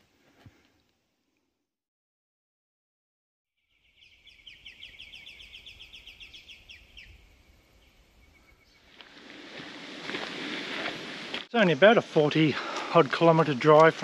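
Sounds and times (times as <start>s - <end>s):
bird chirping rapidly: 3.7s - 8.9s.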